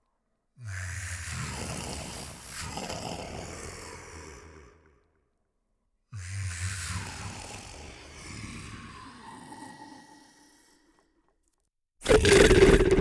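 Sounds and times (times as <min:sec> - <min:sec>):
dragon roar: 0:06.2 - 0:11.0.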